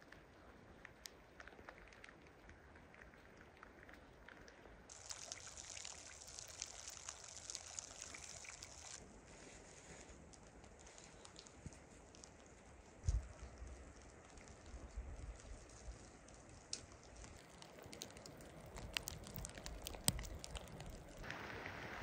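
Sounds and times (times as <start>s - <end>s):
water trickling and dripping: 0.0s - 22.0s
water hissing: 4.9s - 12.3s
light ticks: 10.0s - 21.2s.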